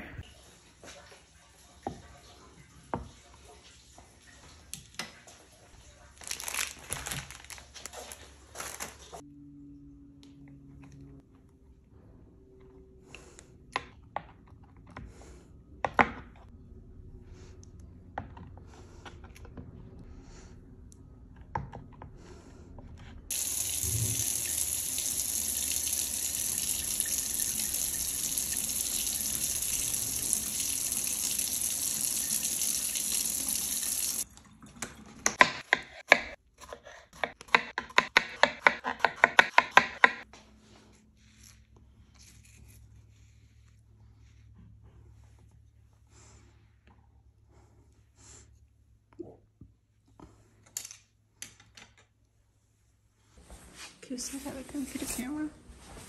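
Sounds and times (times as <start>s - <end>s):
kitchen tap running: 23.3s - 35.6s.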